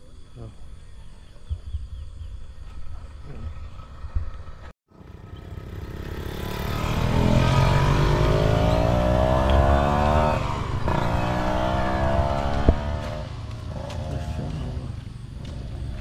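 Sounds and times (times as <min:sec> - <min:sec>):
vehicle engine accelerating: 0:03.2 - 0:16.0.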